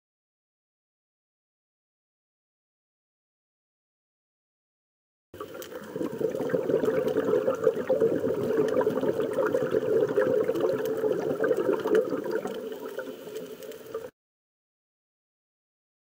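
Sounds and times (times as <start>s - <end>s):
water bubbling with small pops: 5.4s - 14.1s.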